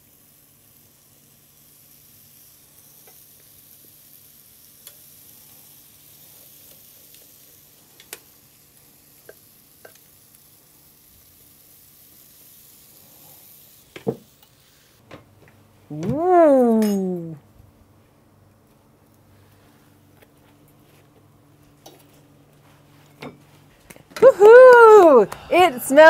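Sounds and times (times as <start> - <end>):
batter sizzling in waffle iron: 0.0 - 15.0, 24.2 - 26.0.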